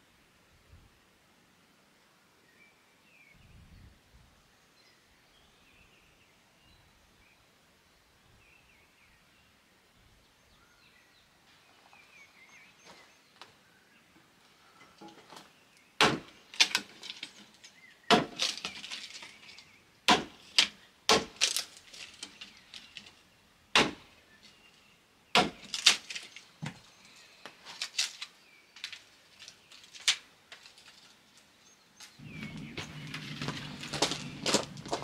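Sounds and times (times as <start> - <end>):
hatchet chopping wood: 16.0 - 17.0, 18.1 - 18.9, 20.1 - 21.7, 23.7 - 24.1, 25.4 - 26.1
sticks clattering: 16.1 - 23.2.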